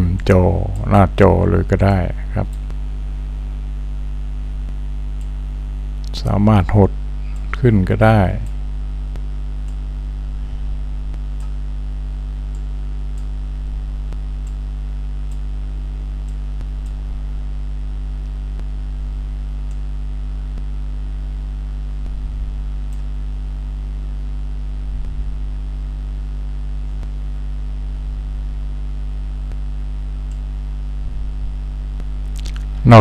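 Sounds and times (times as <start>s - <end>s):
electrical mains hum: 0.0s - 33.0s
faint ticks: 4.6s - 5.4s, 8.4s - 9.9s, 11.1s - 11.6s, 12.4s - 13.4s, 14.1s - 15.5s, 16.2s - 17.0s, 19.4s - 19.9s, 22.0s - 23.1s, 29.4s - 30.6s.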